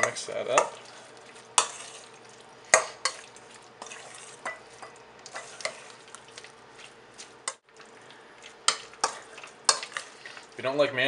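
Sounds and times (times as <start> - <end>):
utensil clinking against metal bowl: 0.0 - 0.9, 1.6 - 6.5, 8.7 - 10.5
utensil stirring food in bowl: 0.0 - 10.8.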